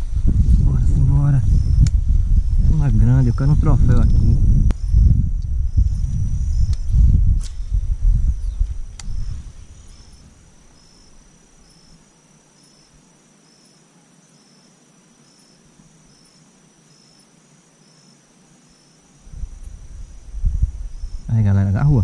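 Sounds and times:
low rumble: 0:00.0 - 0:10.5
insects trilling: 0:00.0 - 0:22.0
short insect chirp: 0:01.1 - 0:22.0.

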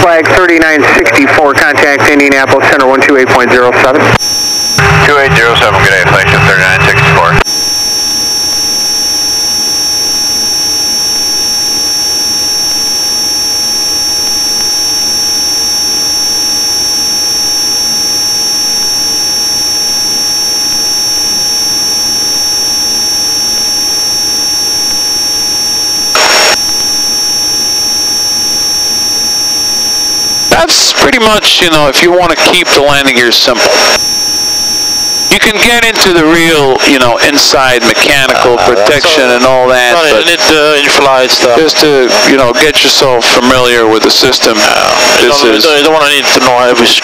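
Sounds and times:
propeller engine drone in cockpit: 0:04.0 - 0:30.6.

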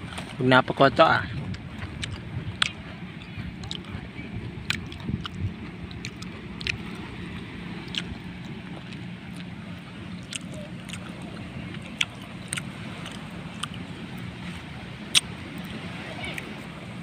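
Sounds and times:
low motor drone: 0:00.0 - 0:17.0.

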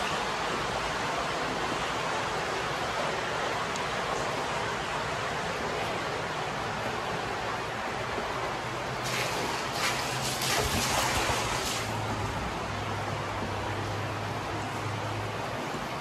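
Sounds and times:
shallow water rushing: 0:00.0 - 0:16.0
person wading through water: 0:09.0 - 0:12.4.

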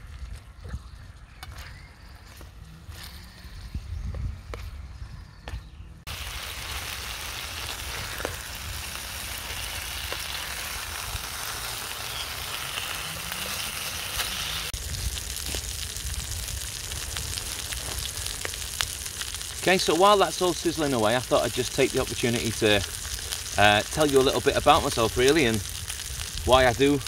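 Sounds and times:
meat sizzling in a pan: 0:06.1 - 0:27.0.

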